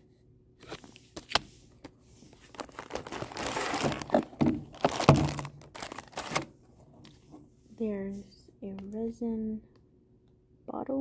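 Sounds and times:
plastic packaging crinkling: 2.3s - 6.5s.

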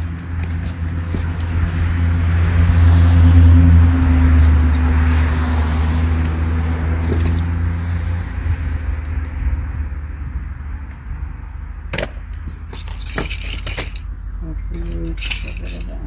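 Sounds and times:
car driving past: 1.5s - 11.7s.

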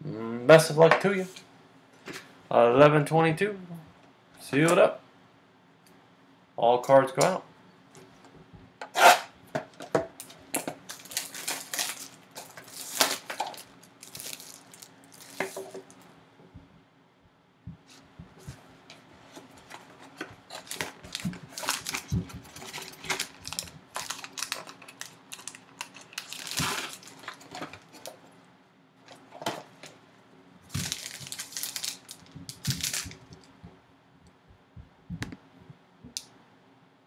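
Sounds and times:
crinkling foil: 10.2s - 16.0s, 19.3s - 28.3s, 30.7s - 33.5s.

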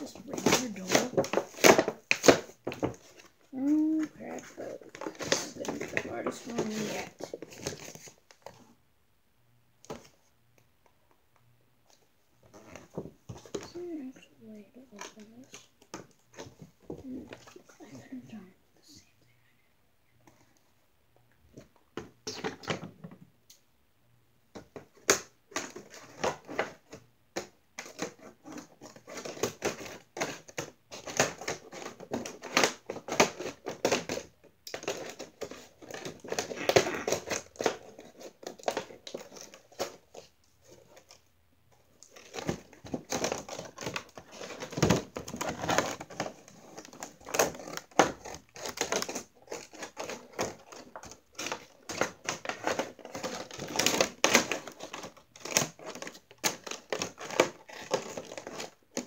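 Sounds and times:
plastic packaging crinkling: 27.8s - 41.2s, 42.0s - 59.0s.

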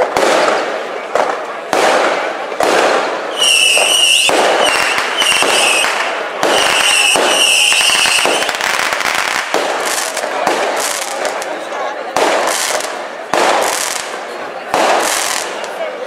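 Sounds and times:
fireworks cracking and popping: 0.0s - 16.0s
firework whistles: 3.0s - 9.2s.

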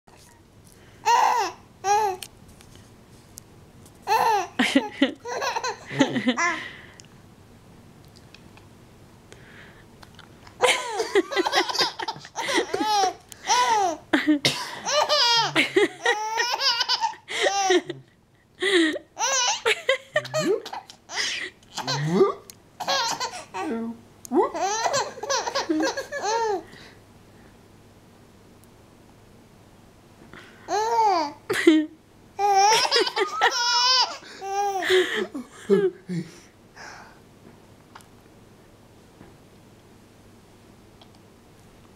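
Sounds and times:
baby girl laughing: 4.1s - 6.6s, 10.6s - 18.0s, 19.1s - 22.2s, 22.8s - 23.7s, 24.5s - 26.7s, 32.4s - 35.4s.

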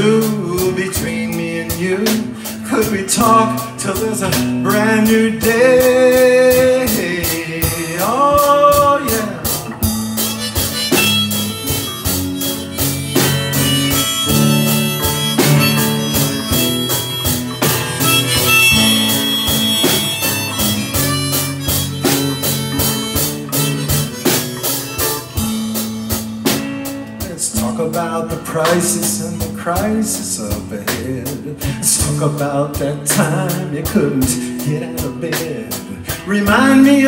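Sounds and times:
drum kit beat: 0.0s - 37.0s
strummed acoustic guitar: 0.0s - 37.0s
harmonica melody: 4.6s - 27.3s.

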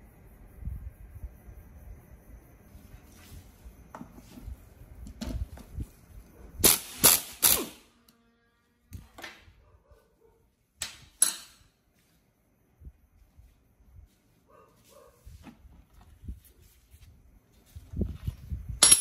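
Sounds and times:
impact wrench rattling bursts: 6.6s - 7.8s.

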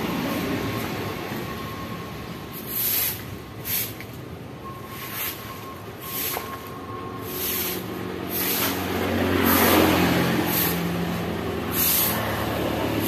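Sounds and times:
vehicle engine hum: 0.0s - 13.0s
tyre hiss on wet road: 2.6s - 4.1s, 7.2s - 8.8s, 9.4s - 11.0s, 11.6s - 12.3s.

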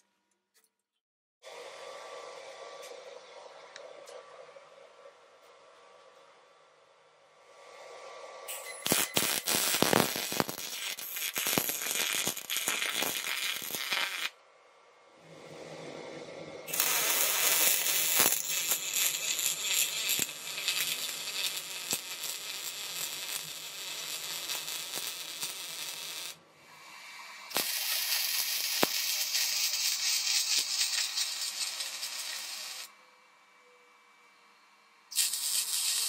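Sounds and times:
arc welding crackling sizzle: 8.5s - 14.4s, 16.7s - 26.4s, 27.4s - 33.0s, 35.1s - 36.0s.

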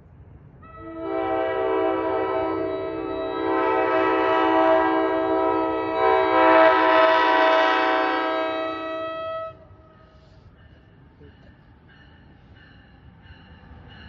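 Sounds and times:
locomotive horn chord: 0.6s - 9.8s.

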